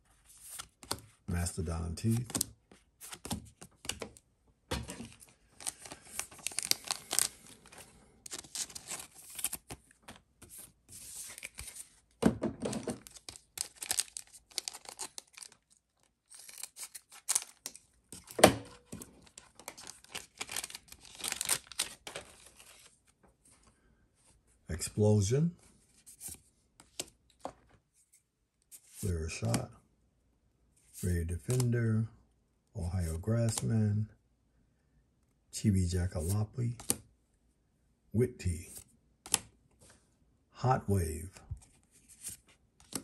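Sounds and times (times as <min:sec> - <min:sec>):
wrapper tearing and crinkling: 0:05.6 - 0:07.6, 0:13.0 - 0:17.6, 0:19.4 - 0:22.8.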